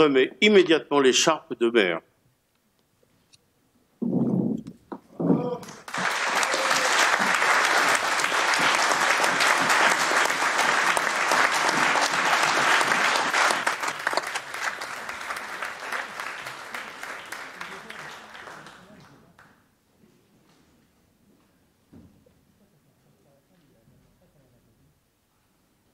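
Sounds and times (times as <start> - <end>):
people applauding: 5.5 - 19.6.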